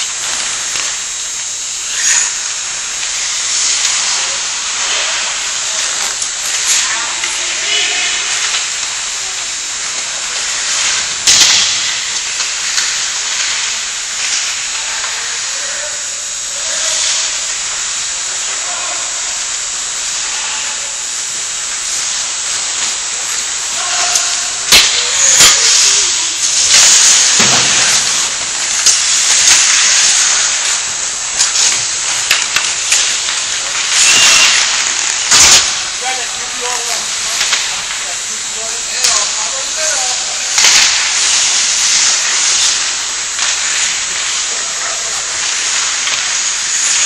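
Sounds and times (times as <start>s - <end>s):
skate blades hissing on ice: 1.8s - 47.0s
hockey sticks and puck clacking: 10.0s - 13.6s, 23.8s - 30.8s, 31.4s - 38.1s
skates scraping ice: 23.8s - 30.8s.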